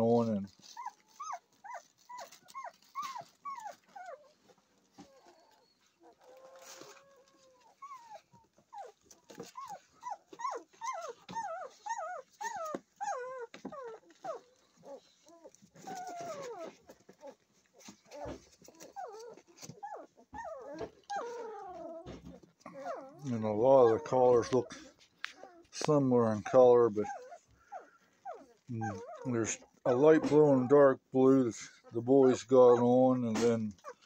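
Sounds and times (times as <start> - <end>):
puppies squealing and whining: 0.0 - 34.0.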